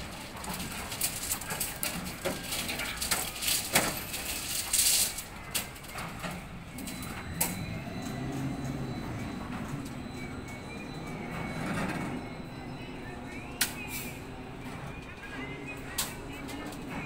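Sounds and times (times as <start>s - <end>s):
chains and steel rebar clinking: 0.0s - 6.0s.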